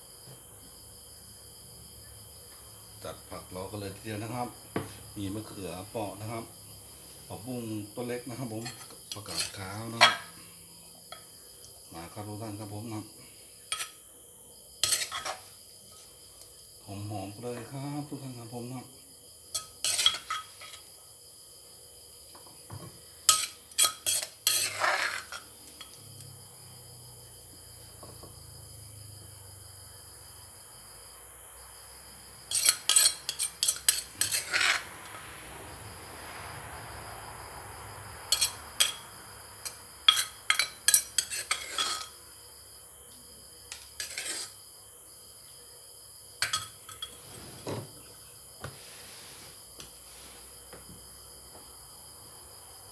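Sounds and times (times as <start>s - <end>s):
metal spoon clinking in mortar: 32.5s - 34.8s, 38.3s - 39.0s, 39.6s - 42.2s, 46.4s - 47.2s.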